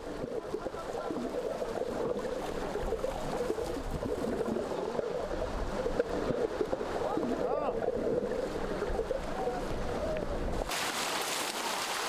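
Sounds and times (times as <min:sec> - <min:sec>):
river water splashing: 0:10.6 - 0:12.0.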